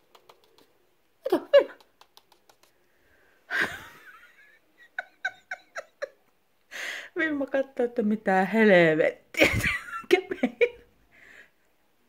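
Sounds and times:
woman laughing: 3.5 - 6.4, 9.4 - 10.9.

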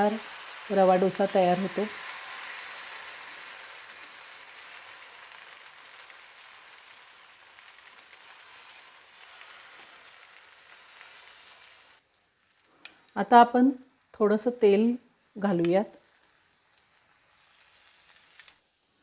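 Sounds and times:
batter sizzling on hot pan: 0.0 - 19.0.

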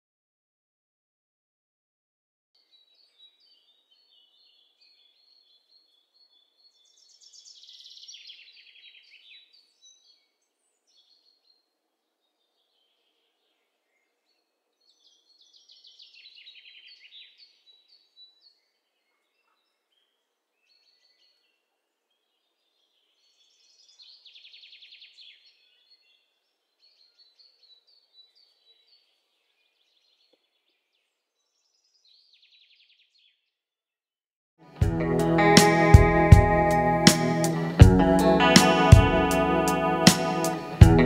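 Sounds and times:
faint songbird song: 2.6 - 33.5.

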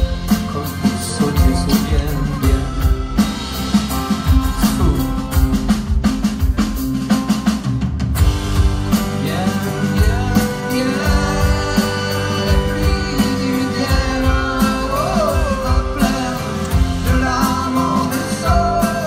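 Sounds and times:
acoustic guitar: 0.0 - 19.0
electric guitar: 0.0 - 19.0
steady drum beat: 0.0 - 19.0.

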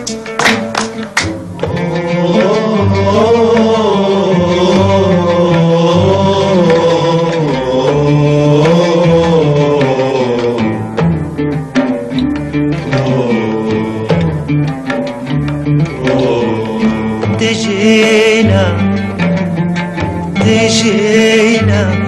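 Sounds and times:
hand-drum beats: 0.0 - 22.0.

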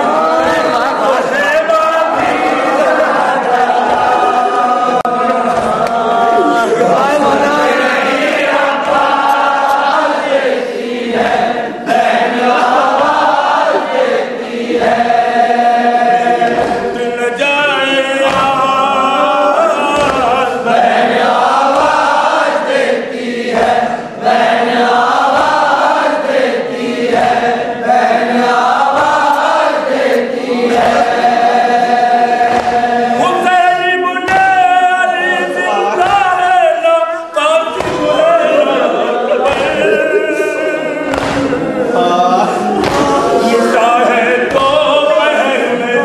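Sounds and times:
men chanting in chorus: 0.0 - 46.0.

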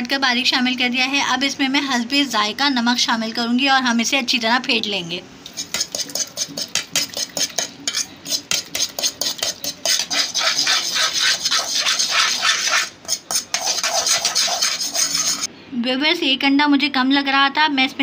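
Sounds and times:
spoon beating egg in metal pan: 5.5 - 15.5.

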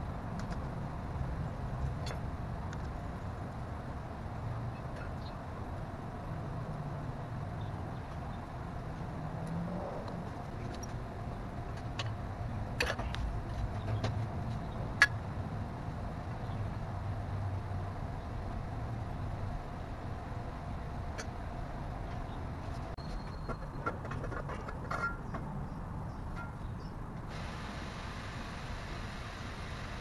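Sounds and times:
steady low hum: 27.2 - 30.0.

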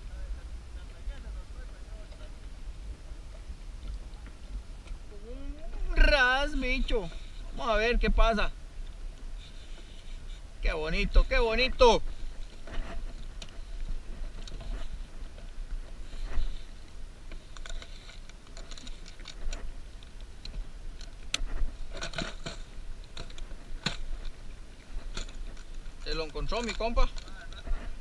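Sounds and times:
fishing gear clicking and rattling: 8.8 - 28.0.

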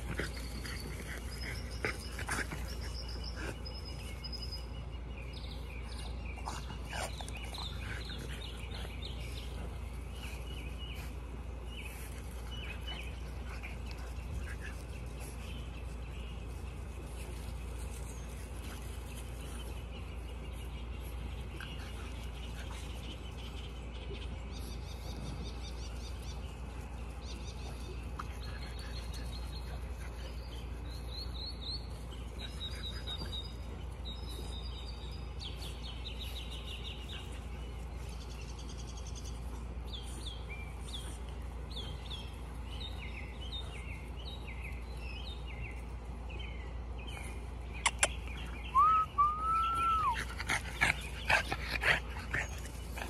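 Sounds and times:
birds chirping and trilling: 0.0 - 53.0
puppy whining: 48.7 - 50.9.

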